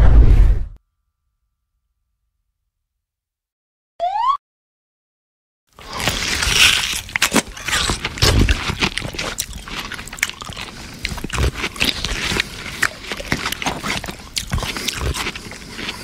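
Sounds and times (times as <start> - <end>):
crunchy chewing: 5.8 - 16.0.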